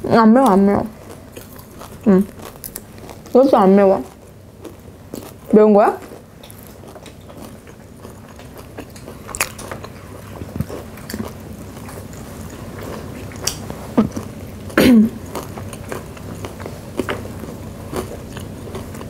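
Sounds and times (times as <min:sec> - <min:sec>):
chewing crispy fried food: 0:00.0 - 0:19.0.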